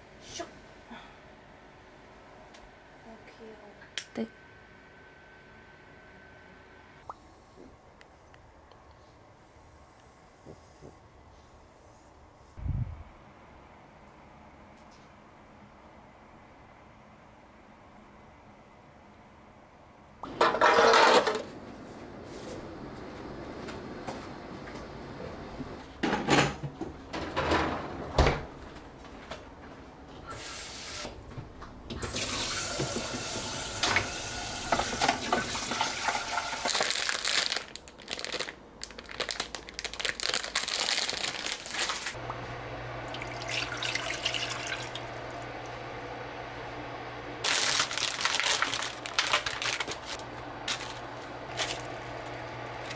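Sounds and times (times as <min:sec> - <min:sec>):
steady low hum: 0:00.0 - 0:20.2, 0:21.4 - 0:26.0, 0:42.1 - 0:52.9
tap running water into sink: 0:32.2 - 0:36.5.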